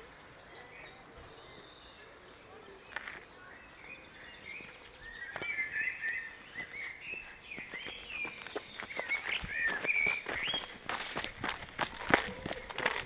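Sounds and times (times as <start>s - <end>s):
songbirds singing: 0.0s - 13.0s
footsteps on dirt path: 4.5s - 13.0s.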